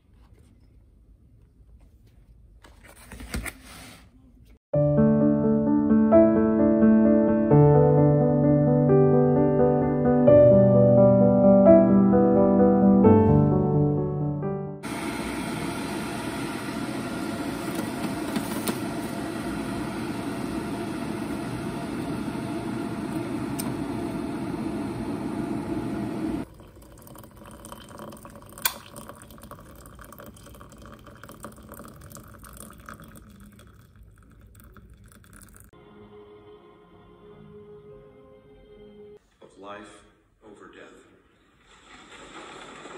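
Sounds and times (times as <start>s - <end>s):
electric kettle heating water: 14.8s - 35.7s.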